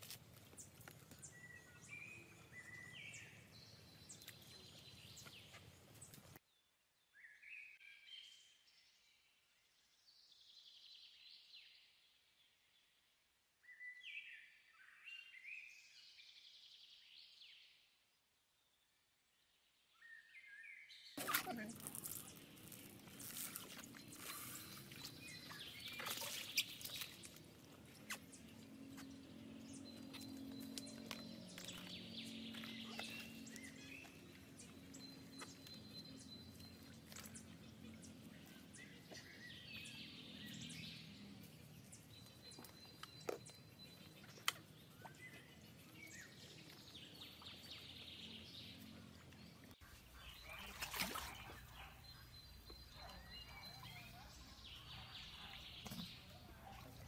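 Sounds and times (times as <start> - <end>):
water splashes and drips: 21.2 - 34.8, 49.2 - 54.1
birds calling: 21.2 - 57.0.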